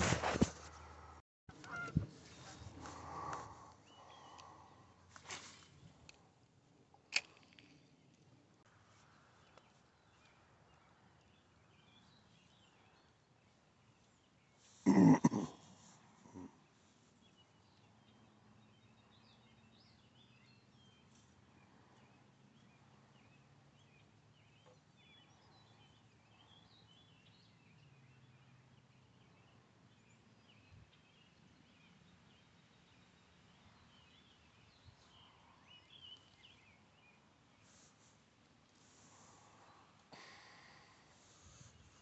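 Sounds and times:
faint bird chirps: 1.6s - 5.9s.

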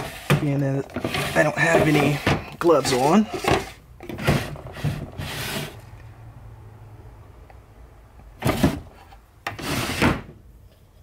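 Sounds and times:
household objects rubbing and knocking: 0.0s - 6.0s, 8.4s - 10.4s.

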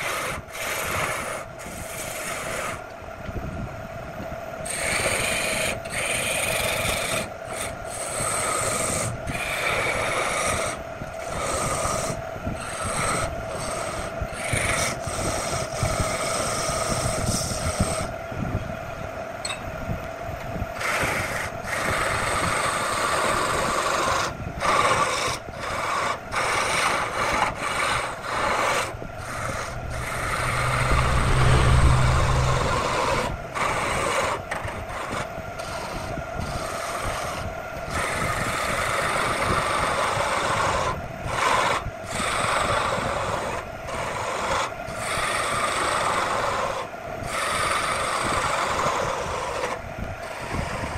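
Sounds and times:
chisel scraping spinning wood: 0.0s - 3.0s, 4.6s - 18.1s, 20.8s - 50.9s
lathe motor hum: 4.6s - 18.1s, 20.8s - 50.9s.

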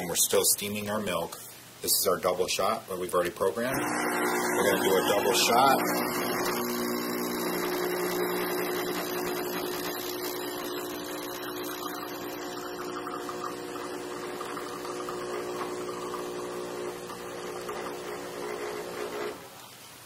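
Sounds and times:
milk frother running: 3.7s - 19.5s
coffee machine pump humming: 3.7s - 19.6s.

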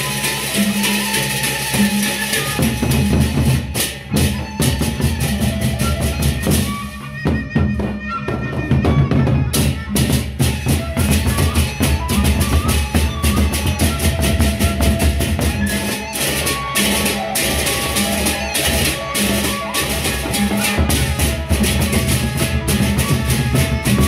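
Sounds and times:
barrel drums beaten fast: 0.0s - 24.0s.

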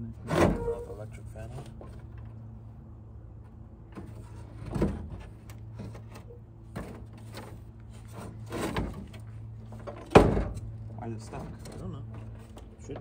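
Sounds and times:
steady low hum: 0.0s - 13.0s
fan assembly knocking and rattling: 3.9s - 13.0s.

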